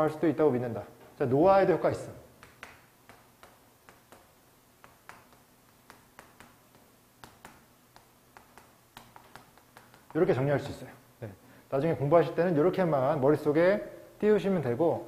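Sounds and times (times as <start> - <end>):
chalk on a chalkboard: 2.4 - 10.3.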